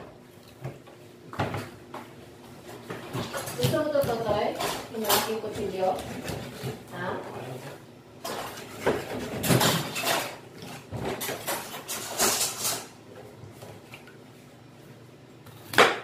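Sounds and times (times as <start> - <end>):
knife cutting and scraping fish: 3.2 - 7.6, 8.6 - 13.0.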